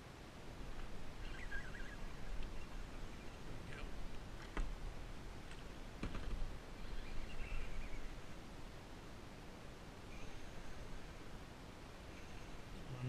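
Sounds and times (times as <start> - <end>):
small bird chirping: 1.2 - 3.9, 6.7 - 8.4.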